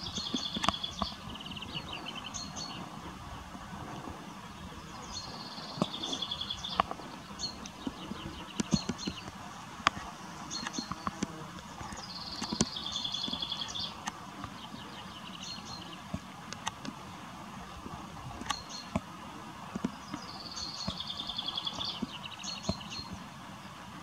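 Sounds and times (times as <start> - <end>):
songbird trilling: 0.0 - 2.9, 4.7 - 9.4, 10.0 - 16.1, 19.9 - 23.2
steady hiss: 0.0 - 24.0
sharp clicks: 7.6 - 14.6, 16.1 - 17.0.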